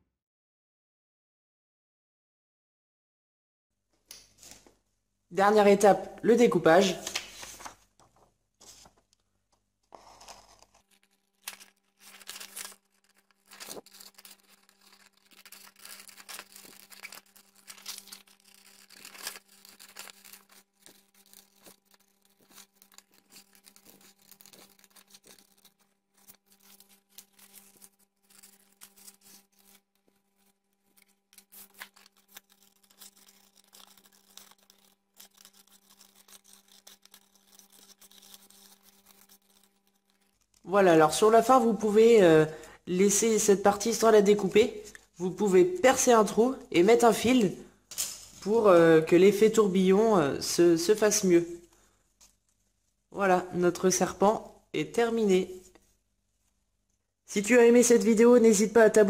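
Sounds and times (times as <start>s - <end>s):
paper rustling: 4.2s - 4.8s, 6.7s - 41.7s
scissors snipping paper: 9.9s - 40.6s.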